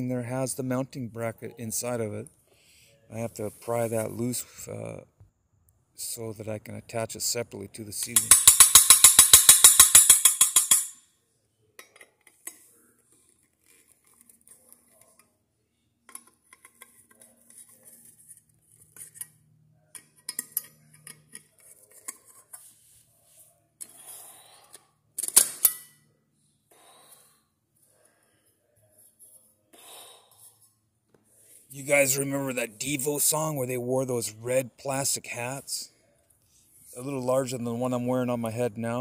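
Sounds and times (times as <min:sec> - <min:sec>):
metal parts clinking and knocking: 0:08.2 - 0:11.0
metallic clatter: 0:08.2 - 0:11.0.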